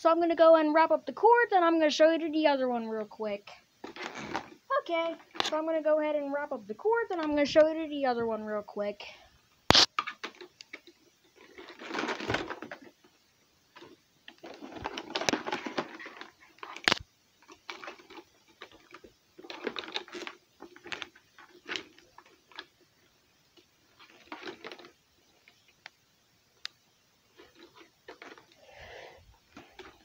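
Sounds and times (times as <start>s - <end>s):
rustling and clattering of cord: 3.8s - 5.6s, 10.0s - 26.0s, 27.3s - 30.0s.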